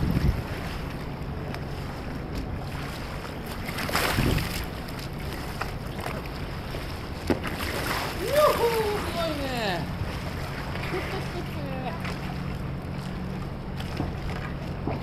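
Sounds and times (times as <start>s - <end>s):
wind buffeting microphone: 0.0s - 0.9s, 3.9s - 4.8s
kayak splash: 1.7s - 13.1s.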